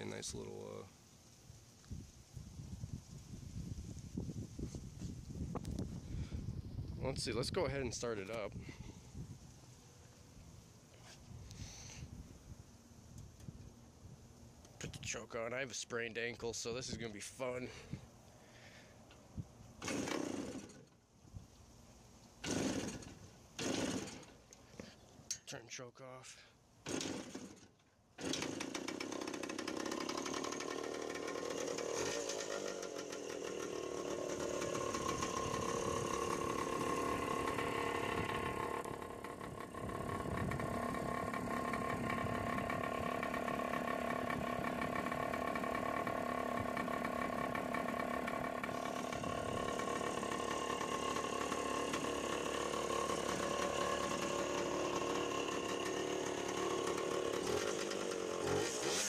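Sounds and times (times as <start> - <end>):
two-stroke motorcycle engine running: 28.2 - 59.0.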